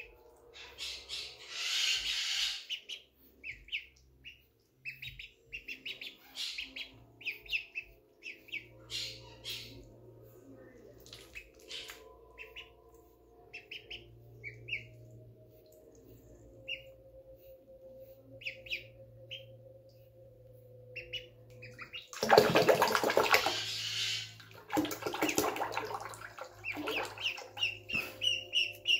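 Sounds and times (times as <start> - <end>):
ducklings peeping: 0.0 - 9.9, 11.1 - 20.1, 20.9 - 22.3, 26.4 - 28.9
splashing in shallow water: 22.1 - 23.7, 24.4 - 28.1.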